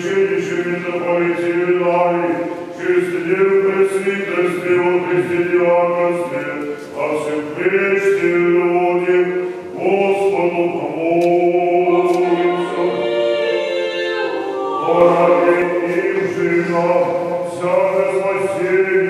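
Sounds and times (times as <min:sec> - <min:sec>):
choir singing a cappella chant: 0:00.0 - 0:19.0.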